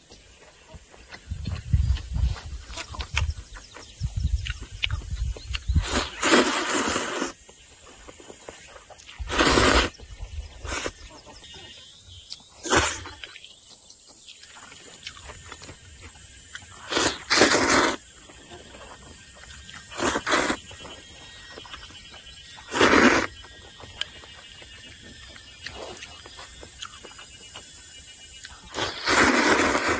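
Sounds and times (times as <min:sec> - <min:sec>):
person slurping noodles: 0:05.8 - 0:07.4, 0:09.2 - 0:10.0, 0:10.6 - 0:11.0, 0:12.6 - 0:13.2, 0:16.8 - 0:18.0, 0:19.8 - 0:20.6, 0:22.7 - 0:23.3, 0:28.7 - 0:29.9.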